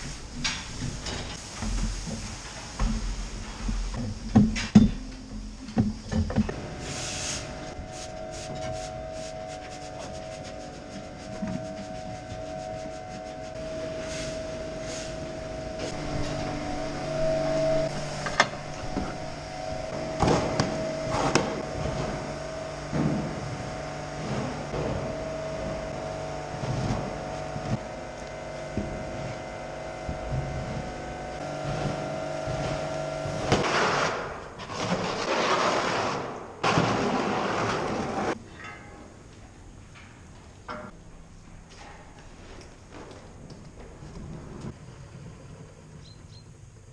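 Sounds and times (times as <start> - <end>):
barn machinery humming: 0.0 - 46.9
scraping: 6.8 - 27.9
metal clanks and knocks: 37.7 - 41.0.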